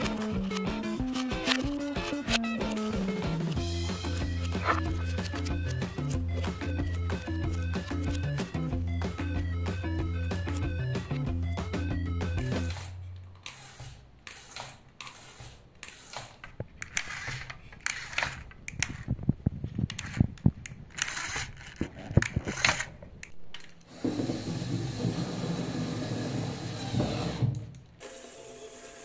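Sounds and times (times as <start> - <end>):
plastic parts clicking and rattling: 0.0 - 2.4, 4.0 - 8.4, 14.3 - 23.9
electric motor humming: 23.9 - 29.0.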